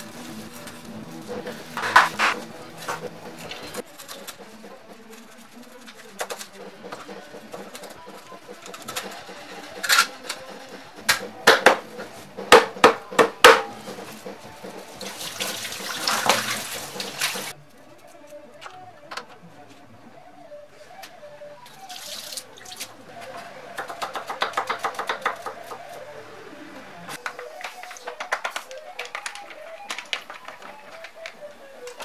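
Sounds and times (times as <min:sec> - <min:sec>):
tap water running into sink: 0:14.7 - 0:17.5.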